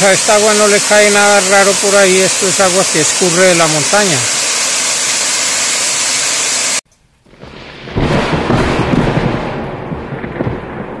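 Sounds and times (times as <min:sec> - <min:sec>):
waterfall pouring: 0:00.0 - 0:06.8.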